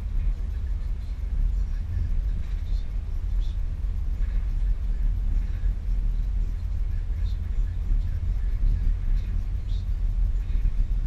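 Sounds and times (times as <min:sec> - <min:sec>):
car interior engine and road noise: 0:00.0 - 0:11.0.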